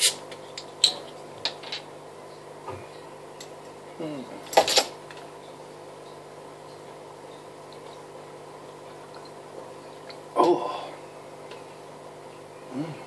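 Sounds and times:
person gulping a drink: 7.7s - 11.0s.

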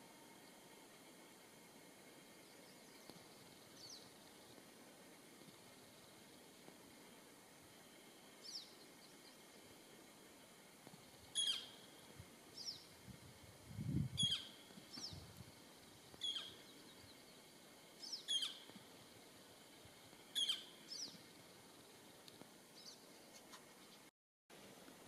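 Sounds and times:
high bird chirps: 11.4s - 11.8s, 14.2s - 15.2s, 16.2s - 16.8s, 18.0s - 18.7s, 20.4s - 21.2s.

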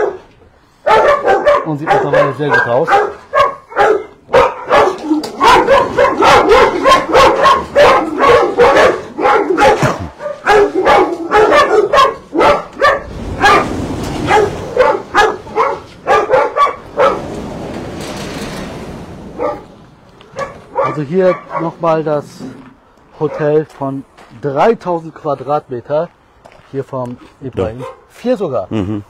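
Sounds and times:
dogs barking: 0.0s - 17.8s, 19.3s - 22.0s, 23.2s - 23.7s, 27.6s - 28.1s.

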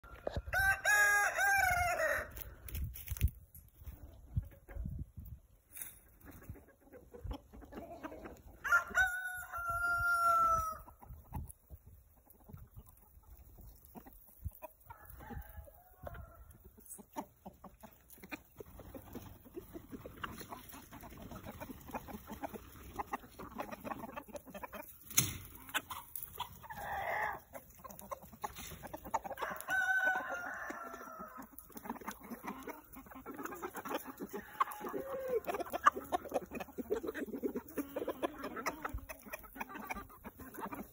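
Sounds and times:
hens clucking: 0.0s - 40.9s
rooster crowing: 8.6s - 10.8s, 29.4s - 31.3s.

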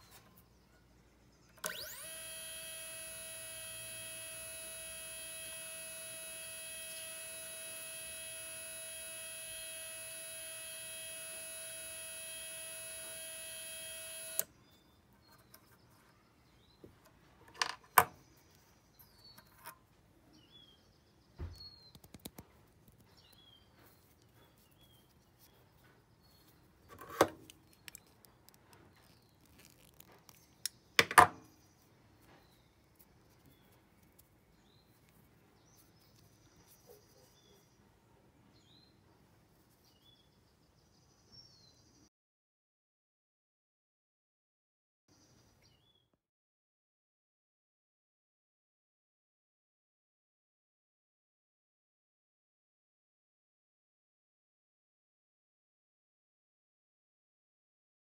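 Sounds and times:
motor whining: 1.6s - 14.5s.

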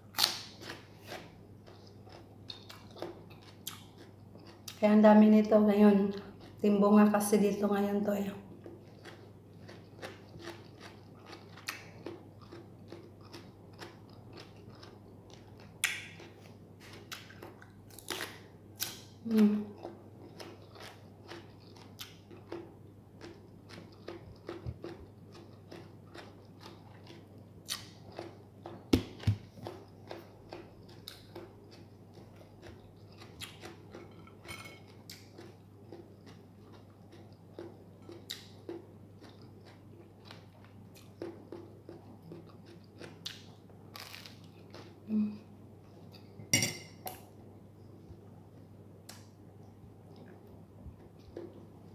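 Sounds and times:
person chewing food: 0.1s - 4.8s, 6.1s - 6.6s, 8.5s - 45.1s, 48.1s - 51.9s.

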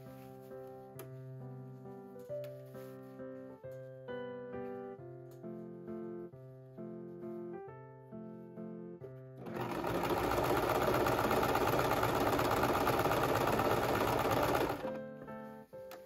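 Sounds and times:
sewing machine stitching: 9.4s - 15.0s.

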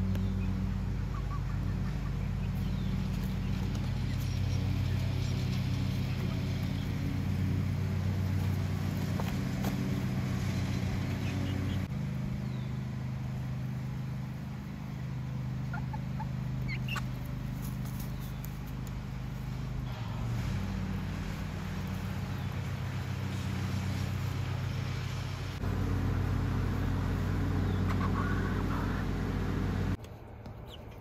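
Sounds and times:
low motor-like hum: 0.0s - 31.0s
hens calling: 15.1s - 19.6s, 25.6s - 30.0s.

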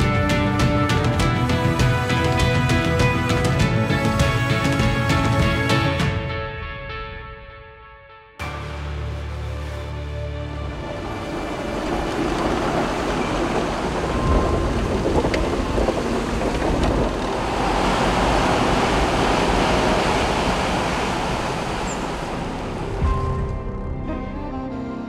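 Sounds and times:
rushing mountain stream: 8.5s - 23.1s.

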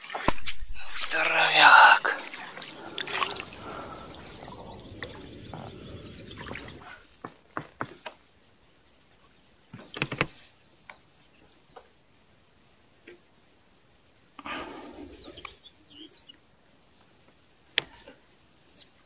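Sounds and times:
water splashing and sloshing: 0.0s - 7.2s.

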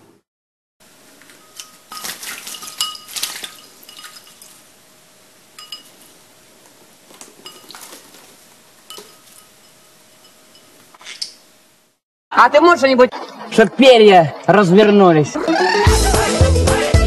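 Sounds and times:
bird splashing in water: 1.2s - 4.8s, 7.0s - 9.6s
light clinks against a bowl: 1.3s - 4.6s, 5.6s - 6.1s, 7.4s - 8.2s, 8.8s - 10.9s.

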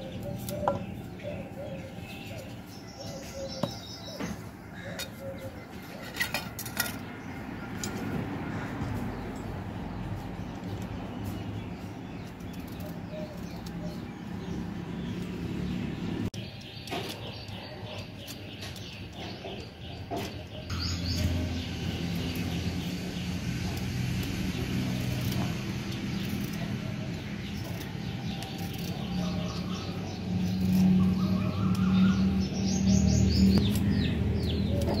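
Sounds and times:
small birds chirping: 0.0s - 35.0s.

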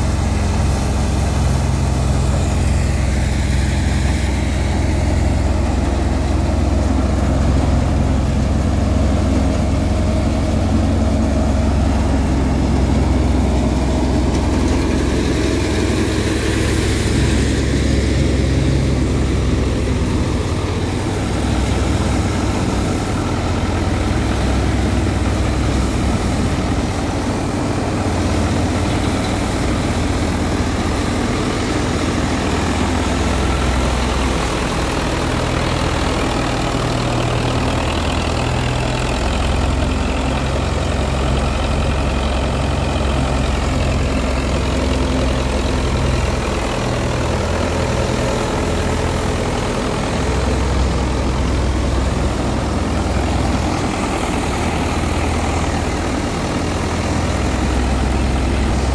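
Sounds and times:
thresher rushing noise: 0.0s - 39.3s
tractor diesel engine under load: 0.0s - 58.9s.

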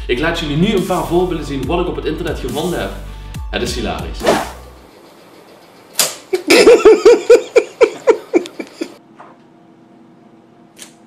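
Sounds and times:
person laughing hard: 6.3s - 9.0s.

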